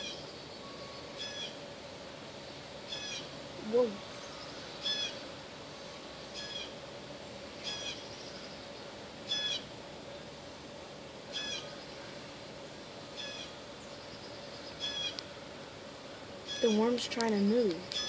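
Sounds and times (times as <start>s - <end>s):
bird calling: 0.0s - 1.6s, 2.8s - 5.3s, 6.3s - 6.8s, 7.6s - 9.8s, 11.3s - 12.3s, 13.1s - 15.8s, 16.4s - 18.0s
faint steady hum: 0.0s - 18.0s.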